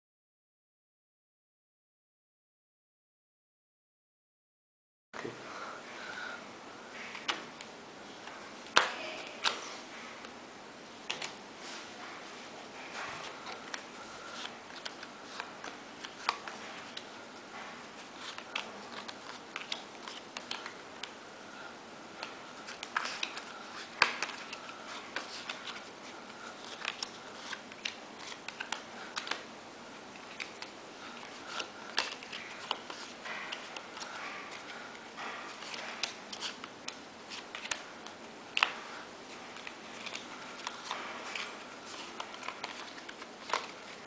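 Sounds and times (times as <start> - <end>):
playing cards clicking on wood floor: 11.1 - 11.4, 13.0 - 17.1, 22.2 - 25.9, 30.2 - 38.9, 39.5 - 44.0.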